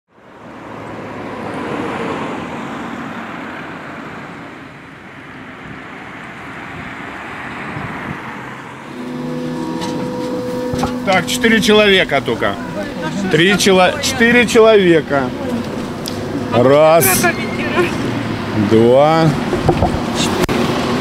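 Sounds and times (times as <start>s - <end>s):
vehicles passing: 0.1s - 21.0s
steady low hum: 8.9s - 19.6s.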